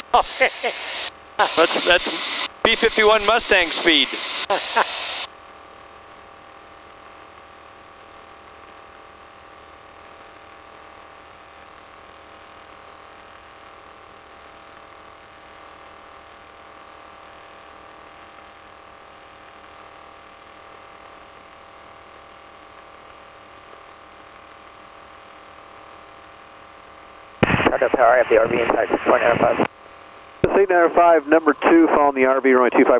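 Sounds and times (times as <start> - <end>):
aircraft engine and propeller drone: 0.4 - 5.2.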